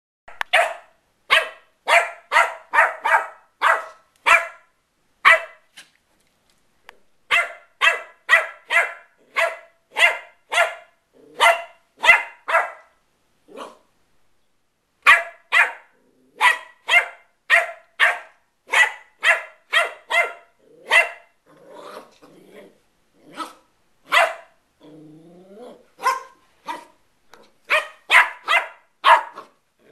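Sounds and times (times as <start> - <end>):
puppy barking: 0.3 - 5.7, 7.3 - 13.9, 15.0 - 22.1, 23.3 - 24.6, 26.0 - 29.6.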